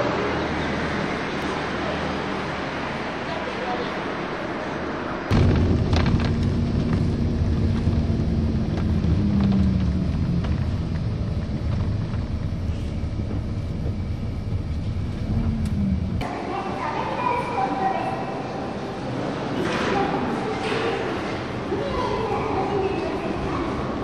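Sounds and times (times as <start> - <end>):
road noise: 0.0 - 24.0
vehicle engine hum: 5.2 - 16.3.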